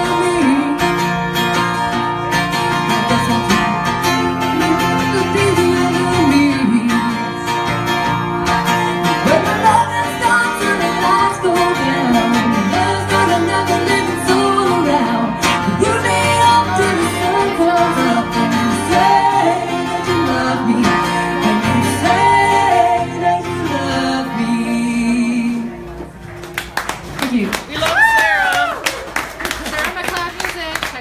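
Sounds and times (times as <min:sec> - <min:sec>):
woman singing: 0:00.0 - 0:01.2, 0:02.9 - 0:07.5, 0:09.2 - 0:25.8
guitar playing: 0:00.0 - 0:27.4.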